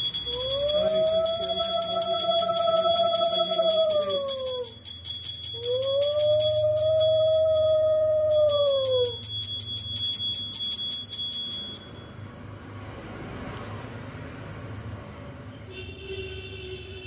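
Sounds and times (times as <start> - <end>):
low tone dropping in pitch: 0.0 - 4.7, 5.6 - 9.2
brass hand bell ringing rapidly: 0.0 - 12.2.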